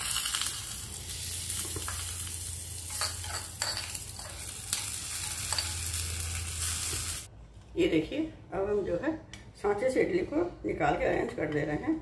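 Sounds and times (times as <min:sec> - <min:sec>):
hot oil sizzling: 0:00.0 - 0:07.3
spoon clinking against pan: 0:02.8 - 0:06.0.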